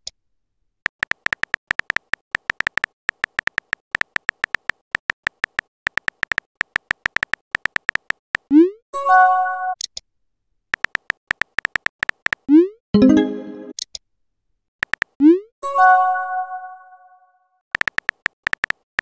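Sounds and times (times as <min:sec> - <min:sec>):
electronic keyboard typing ticks: 0:00.8 - 0:08.6, 0:10.7 - 0:12.6, 0:14.8 - 0:15.2, 0:17.7 - 0:19.0.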